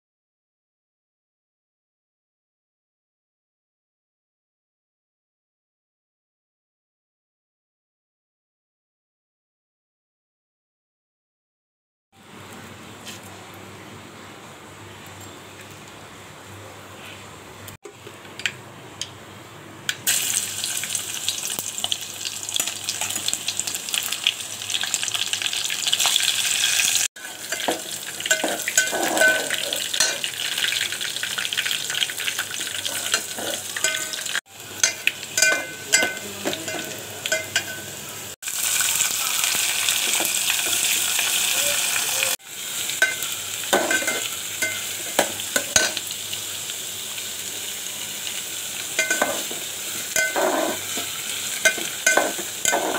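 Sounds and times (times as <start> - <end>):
vegetables frying in hot oil: 20.0 - 52.9
spoon scraping a steel pot: 27.2 - 30.3, 32.8 - 34.2, 50.2 - 52.9.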